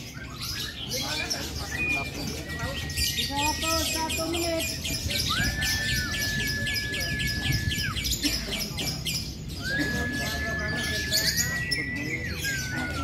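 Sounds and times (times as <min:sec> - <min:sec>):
lovebirds chattering: 0:00.0 - 0:13.0
high whistle-like tone: 0:09.6 - 0:13.0.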